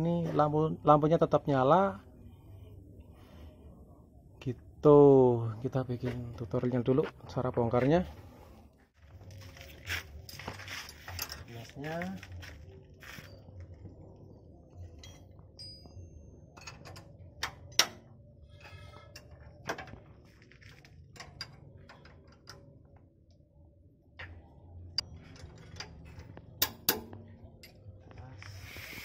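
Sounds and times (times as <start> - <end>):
low steady hum: 0.0 - 29.0
spanner clinking on metal bolts: 16.6 - 18.0.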